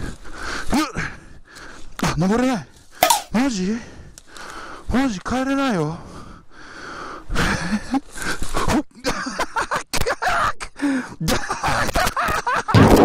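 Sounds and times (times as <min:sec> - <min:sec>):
man panting and grunting: 0:00.0 - 0:01.5.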